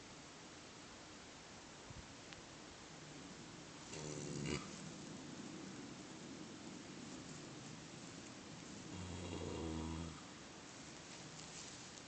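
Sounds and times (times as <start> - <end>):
horse snoring: 3.9 - 5.6, 8.8 - 10.3.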